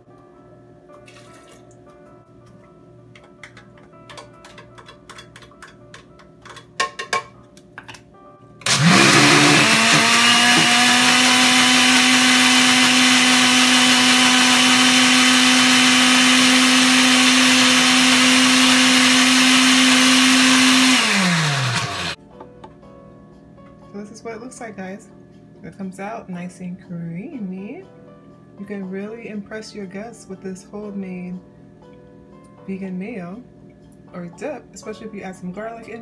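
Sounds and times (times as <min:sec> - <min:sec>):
blender motor running: 0:08.6 - 0:22.2.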